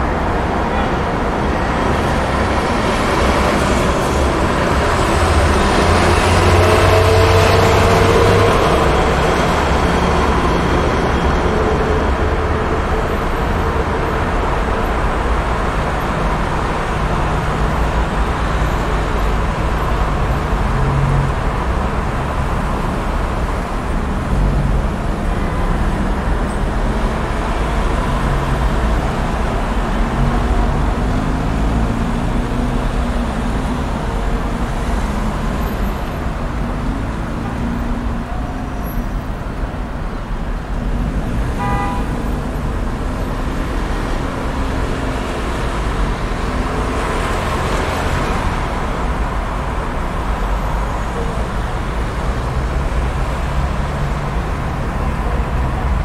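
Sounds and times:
passing cars and engines: 0.0s - 56.0s
car horn toot: 41.6s - 42.3s.

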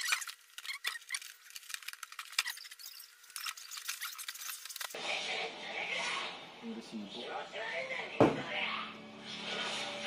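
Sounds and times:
packaging crinkling and clicking: 0.0s - 5.0s.

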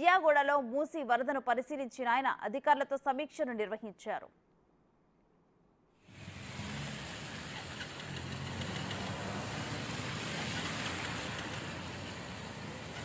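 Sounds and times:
car and bus engines running: 6.0s - 13.0s
tyres hissing through water: 6.0s - 13.0s.

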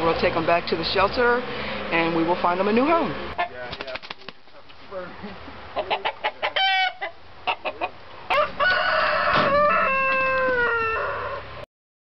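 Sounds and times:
rooster clucking: 3.3s - 4.0s, 5.2s - 11.6s
rooster crowing: 6.6s - 7.1s, 8.3s - 11.6s.

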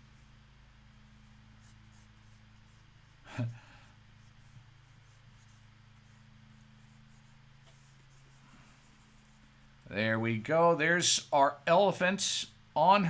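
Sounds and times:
stylus scratching on drawing tablet: 0.0s - 3.4s, 4.1s - 9.9s
low steady hum: 0.0s - 13.0s.

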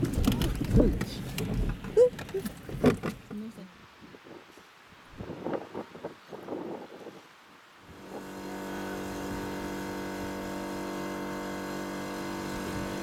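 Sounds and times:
tractor engine running: 0.0s - 3.3s, 8.0s - 13.0s.

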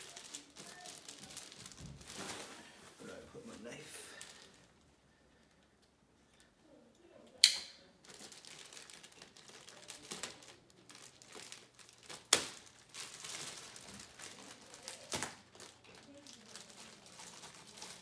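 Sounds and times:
packaging crinkling: 0.0s - 2.8s, 8.0s - 18.0s.

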